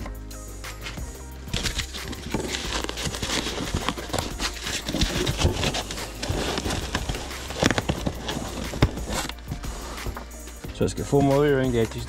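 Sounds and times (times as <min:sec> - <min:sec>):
cardboard box and foam knocking: 0:01.5 - 0:10.3.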